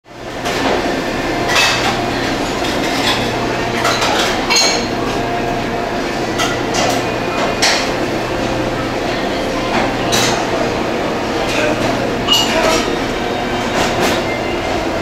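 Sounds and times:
metal pans and utensils clattering: 0.4s - 5.1s, 11.4s - 13.0s.

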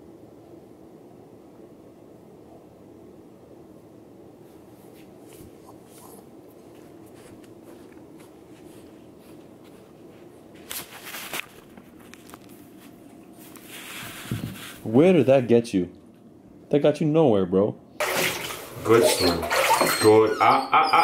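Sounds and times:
low room hum: 0.0s - 21.0s
puppy scuffling: 4.4s - 16.2s, 18.1s - 20.4s
puppy paws on wooden floor: 4.5s - 15.6s.

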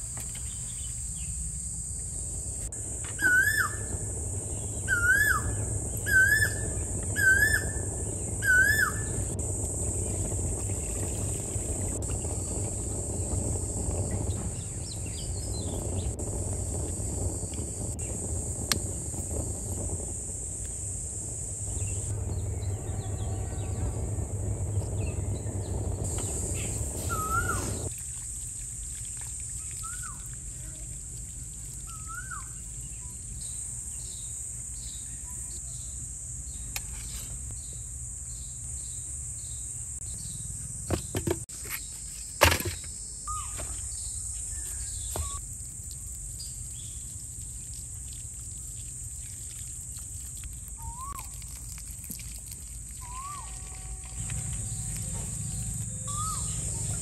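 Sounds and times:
insects droning: 0.0s - 57.0s
low rushing noise: 2.0s - 27.9s
birds chirping: 2.8s - 27.9s, 53.0s - 57.0s
short high bird calls: 26.3s - 27.9s, 53.0s - 57.0s.

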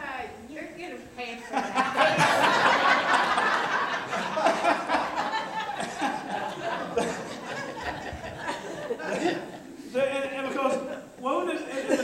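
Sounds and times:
people laughing: 1.5s - 12.0s.

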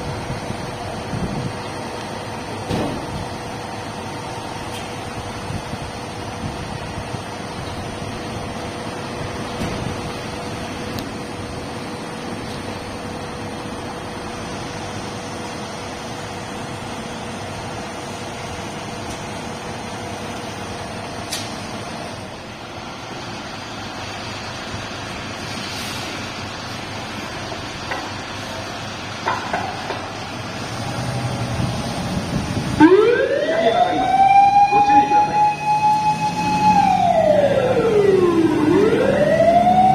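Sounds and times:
diesel engine idling: 0.0s - 39.9s
siren winding up: 32.8s - 39.9s.

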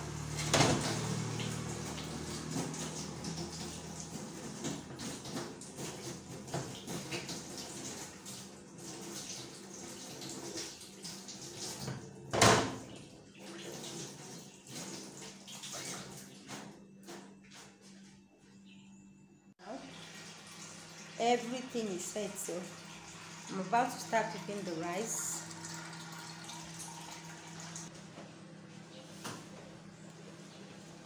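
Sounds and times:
tap water splashing on metal: 0.4s - 16.0s.

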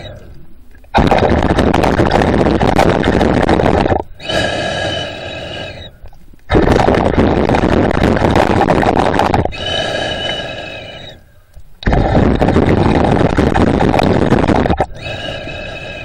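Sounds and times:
rough breathing through snorkel: 0.0s - 0.4s, 1.0s - 16.0s
whistling wheezy breath: 4.2s - 6.1s, 9.5s - 11.5s, 14.9s - 16.0s.

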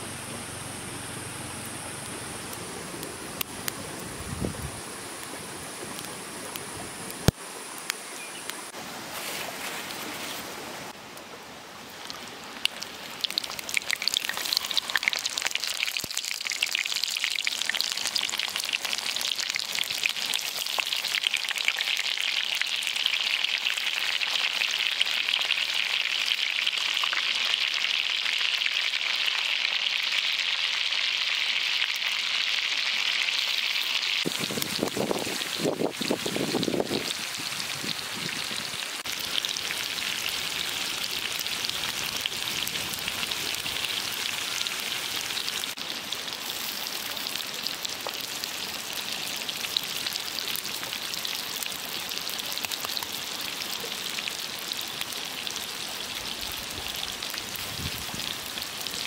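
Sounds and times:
wood fire crackling: 0.1s - 10.6s, 11.2s - 59.0s
hot oil sizzling in a wok: 12.0s - 59.0s.

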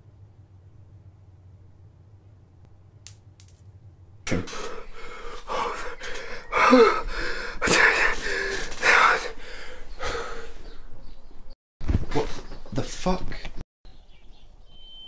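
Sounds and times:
young man gasping and sobbing: 4.6s - 10.6s.

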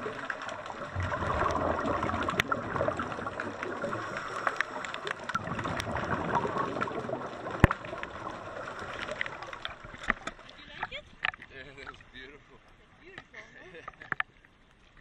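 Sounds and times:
exhaust bubbles: 0.0s - 9.9s
small underwater clicks: 0.0s - 12.1s, 13.1s - 15.0s
underwater water gurgling: 0.0s - 15.0s.

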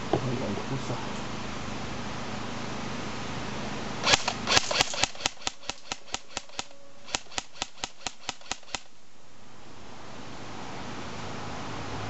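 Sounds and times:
airsoft rifle shots: 4.0s - 9.0s.

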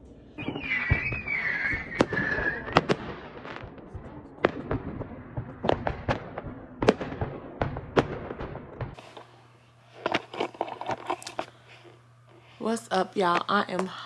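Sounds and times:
high wavering whistle: 0.4s - 2.9s
fireworks bangs and crackles: 0.4s - 9.0s.

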